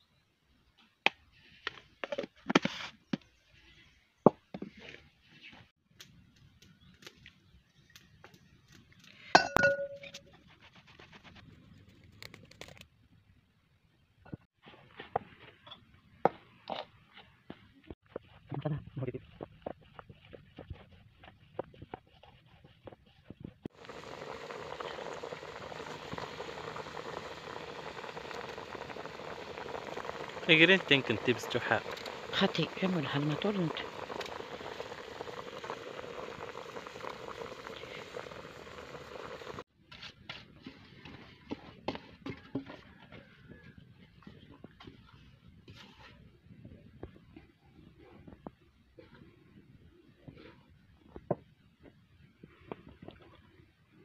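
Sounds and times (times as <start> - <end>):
spoon clinking on steel bowl: 9.4 - 10.2
hands mixing food in bowl: 18.0 - 23.6
water boiling hard: 23.7 - 39.6.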